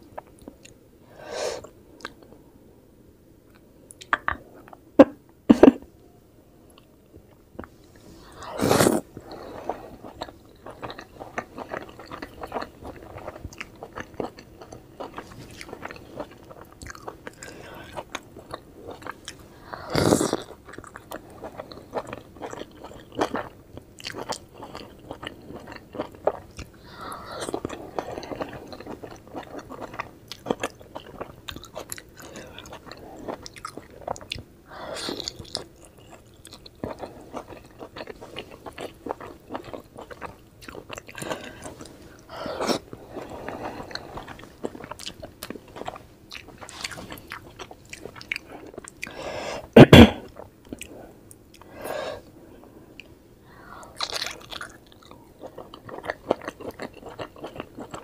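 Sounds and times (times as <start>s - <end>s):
close chewing and wet mouth clicks: 54.0s - 58.0s.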